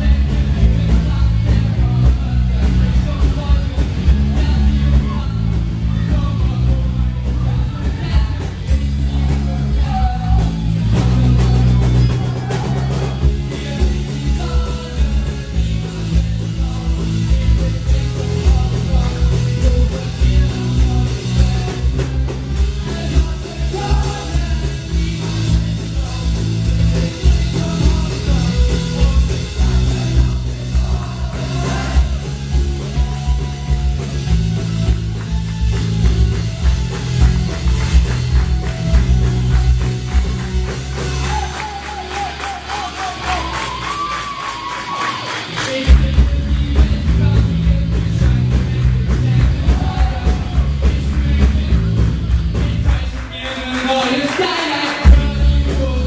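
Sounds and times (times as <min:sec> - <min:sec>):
person singing into a microphone: 0:00.0 - 0:34.2
drum kit: 0:00.0 - 0:56.0
heavy bass line: 0:00.0 - 0:56.0.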